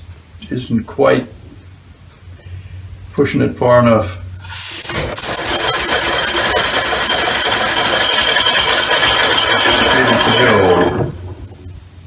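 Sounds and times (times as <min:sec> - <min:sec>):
steady air hiss: 0:04.3 - 0:05.3
air engine rapid clicking: 0:04.9 - 0:11.2.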